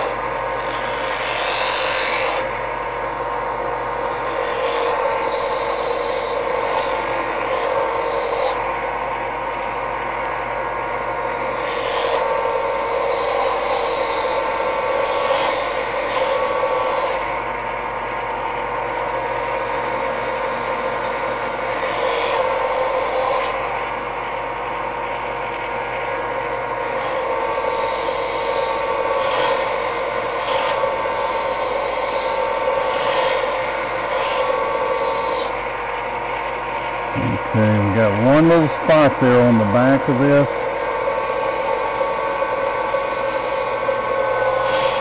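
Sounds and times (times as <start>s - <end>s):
belt sander running: 0.0s - 45.0s
wood grinding on sander belt: 0.0s - 45.0s.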